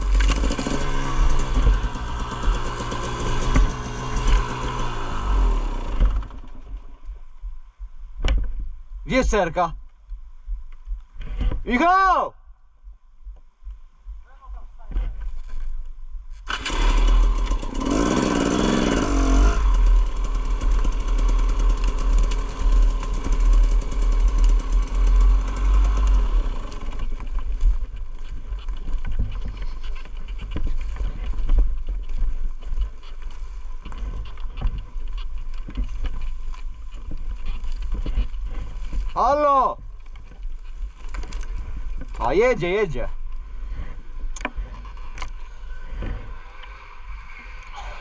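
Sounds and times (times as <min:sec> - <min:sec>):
two-stroke motorcycle engine revving: 0:00.0 - 0:06.3, 0:16.5 - 0:27.6.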